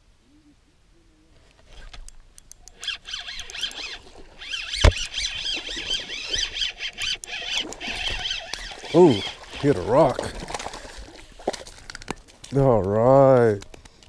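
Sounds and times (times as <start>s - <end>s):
fishing reel ticking: 2.4s - 10.1s
squeaky reel whine: 2.7s - 10.0s.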